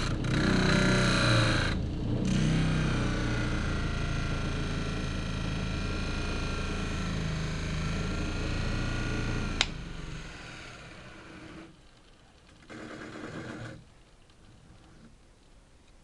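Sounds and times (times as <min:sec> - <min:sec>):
bench grinder humming: 0:00.0 - 0:11.7.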